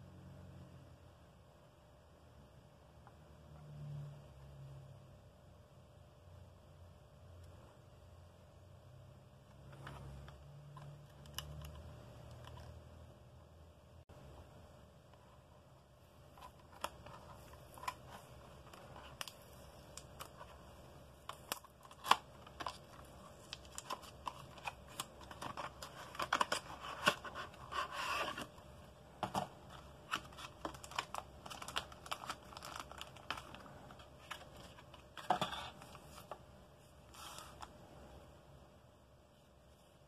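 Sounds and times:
cardboard and plastic rubbing: 21.3 - 28.6, 29.2 - 36.4.

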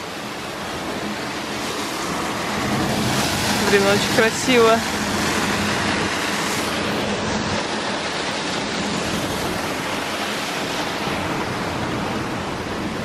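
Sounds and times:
fountain water splashing: 0.0 - 13.0.

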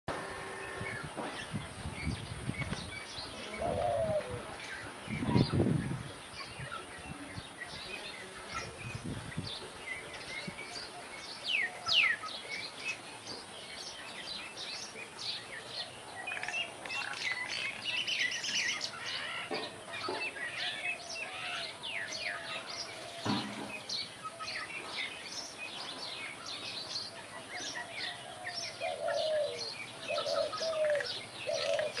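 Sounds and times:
small birds chirping: 0.4 - 32.0
lower wavering bird calls: 3.2 - 8.8, 27.2 - 32.0.

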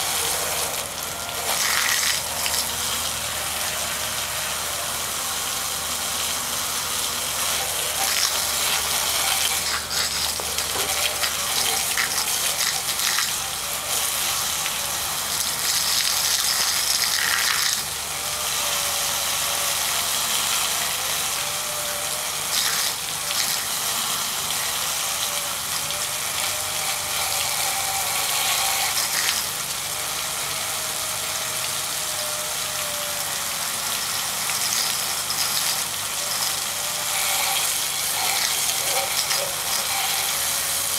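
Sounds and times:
water spraying and splashing: 0.0 - 30.4, 31.2 - 40.9.

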